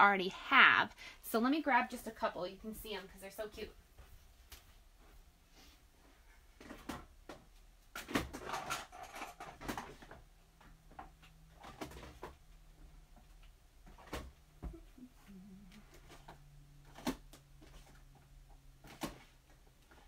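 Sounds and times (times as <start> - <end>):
clicks and knocks of rummaging: 6.6 - 14.4, 15.7 - 20.0.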